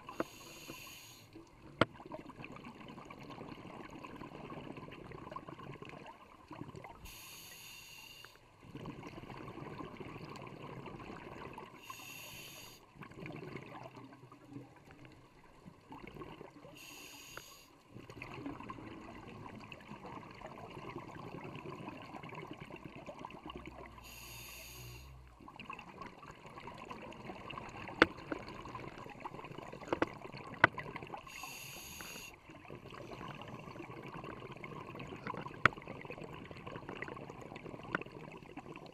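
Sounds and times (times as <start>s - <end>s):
hissing regulator breaths: 0.1s - 1.4s, 7.1s - 8.4s, 11.8s - 12.8s, 16.8s - 17.8s, 24.0s - 25.2s, 31.3s - 32.4s
muffled underwater noise: 11.8s - 12.8s, 23.7s - 25.3s, 26.9s - 38.1s.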